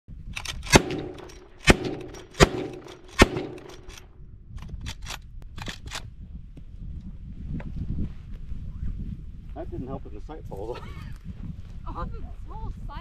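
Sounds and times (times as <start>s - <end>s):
rifle shots: 0.4s - 4.0s.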